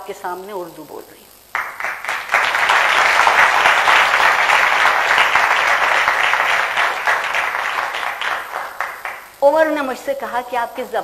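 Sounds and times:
audience applauding: 1.5 - 9.4.

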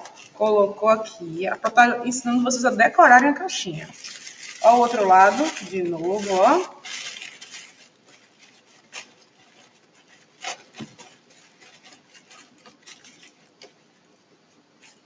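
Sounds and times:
soft rustling of curtain strip: 4.0 - 13.8.

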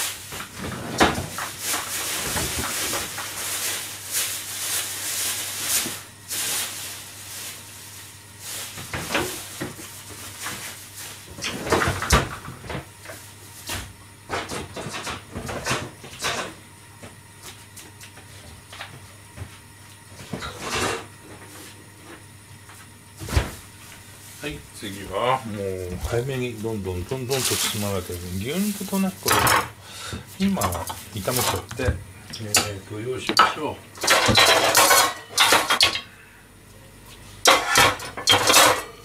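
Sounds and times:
cookware and cupboards clattering: 28.9 - 29.8, 33.4 - 36.0, 37.4 - 39.0.

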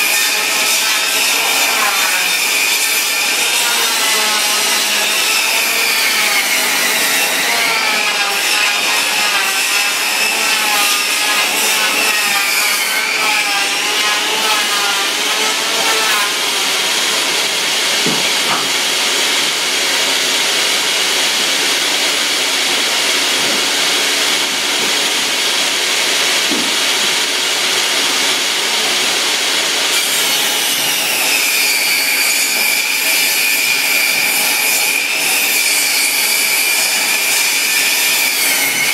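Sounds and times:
saw blade rasping on wood: 0.0 - 18.9
table saw whining: 0.0 - 38.9.

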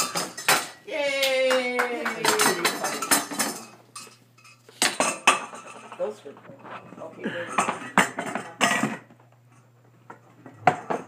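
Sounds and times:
metal pot clanking on wooden floor: 2.2 - 4.2.

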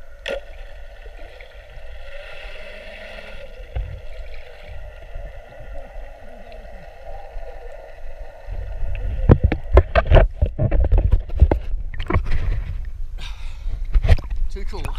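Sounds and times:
camera knocking underwater: 3.7 - 4.2, 8.8 - 12.8.

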